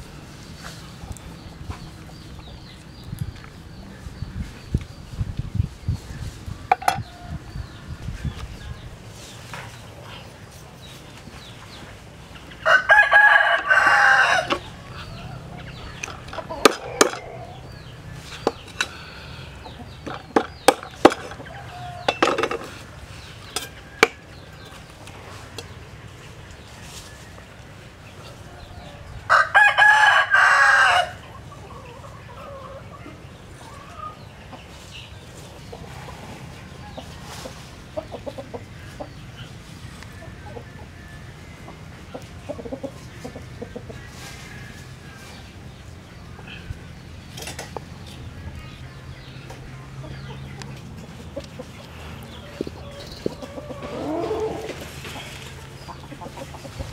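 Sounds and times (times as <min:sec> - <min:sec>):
rooster crowing: 0:12.6 - 0:15.5, 0:28.7 - 0:31.2.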